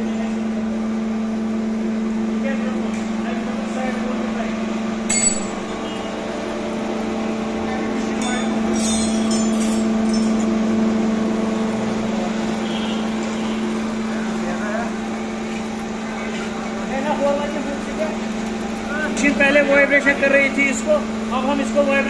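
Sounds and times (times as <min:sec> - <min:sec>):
metallic clinks: 0:05.1 - 0:05.7.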